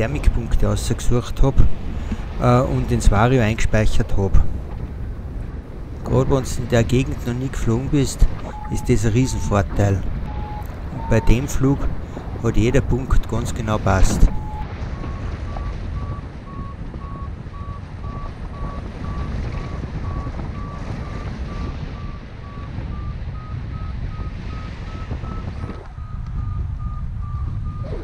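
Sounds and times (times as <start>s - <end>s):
wind on microphone: 0.0s - 28.0s
variometer beeping: 7.6s - 28.0s.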